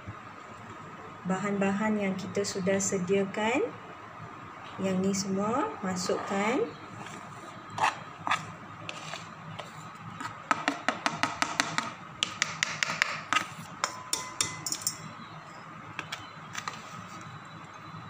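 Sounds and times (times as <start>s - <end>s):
metal spoon tapping a plastic plate: 10.5s - 15.0s.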